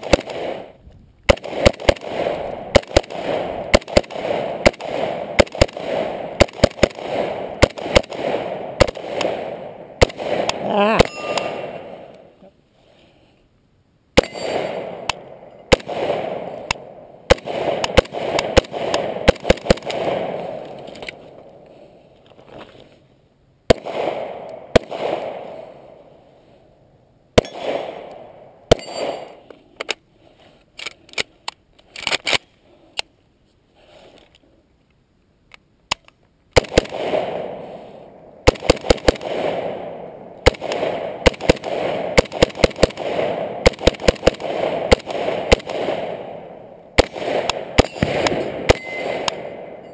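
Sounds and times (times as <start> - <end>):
rifle firing rapid shots: 0.0 - 12.1, 14.2 - 20.8, 23.7 - 25.8, 27.4 - 29.4, 36.6 - 37.8, 38.4 - 49.9.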